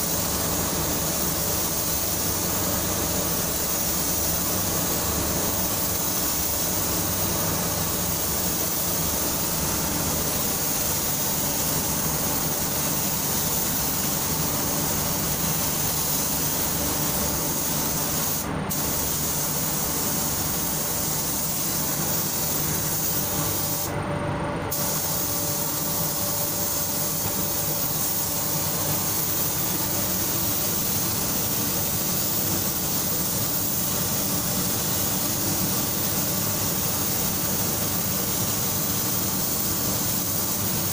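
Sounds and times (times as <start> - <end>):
spray gun hissing: 0.0 - 23.9, 24.7 - 40.9
low mechanical hum: 0.0 - 40.9.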